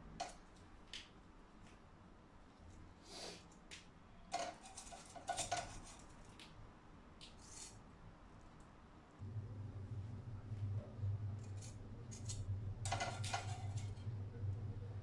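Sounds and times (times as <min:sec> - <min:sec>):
metal tongs clinking on plate: 0:12.9 - 0:14.0.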